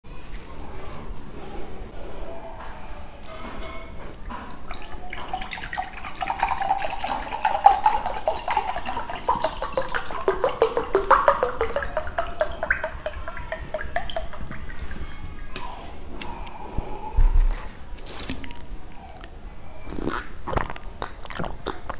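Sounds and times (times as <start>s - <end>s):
liquid pouring and glugging: 4.1s - 16.3s.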